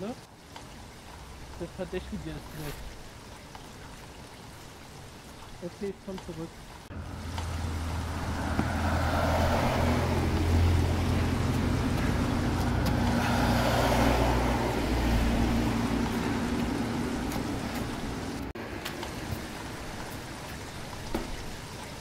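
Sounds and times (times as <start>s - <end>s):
road noise: 0.0s - 22.0s
vehicle engine humming: 6.7s - 20.4s.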